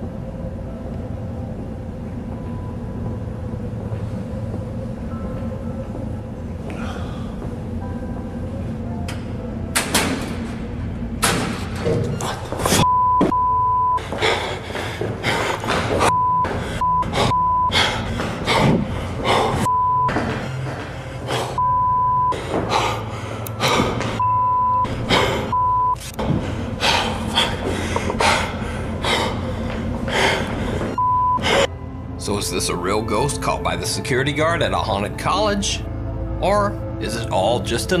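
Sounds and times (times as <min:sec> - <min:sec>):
man breathing hard and gasping: 0:06.7 - 0:07.5, 0:14.0 - 0:21.6, 0:22.3 - 0:24.2, 0:24.8 - 0:25.6, 0:26.2 - 0:31.7
censor bleeps: 0:12.8 - 0:14.0, 0:21.6 - 0:22.3, 0:24.2 - 0:24.9, 0:25.5 - 0:26.0, 0:31.0 - 0:31.4.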